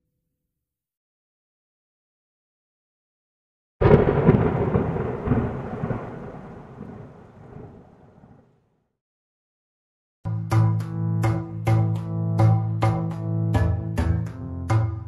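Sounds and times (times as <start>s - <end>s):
thunder-like crack and rumble: 3.8s - 8.6s.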